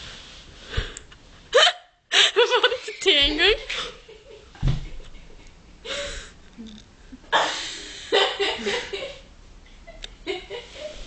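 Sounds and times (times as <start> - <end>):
dull thump: 4.6 - 4.9.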